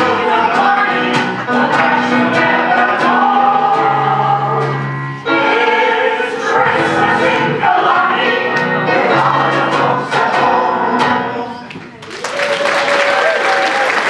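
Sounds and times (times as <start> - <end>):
mixed choir singing: 0.0 - 11.7
audience applause: 11.9 - 14.0.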